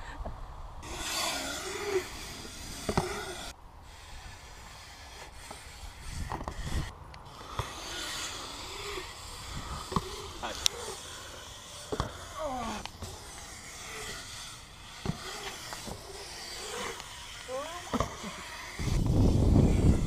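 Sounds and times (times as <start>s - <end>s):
wind noise on microphone: 0.0s - 11.0s, 15.0s - 20.0s
bike tyres rolling on concrete: 0.8s - 20.0s.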